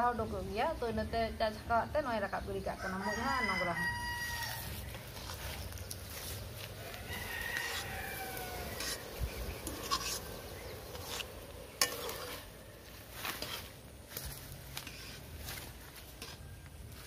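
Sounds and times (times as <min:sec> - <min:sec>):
spoon clinking and scraping pan: 0:08.7 - 0:12.5.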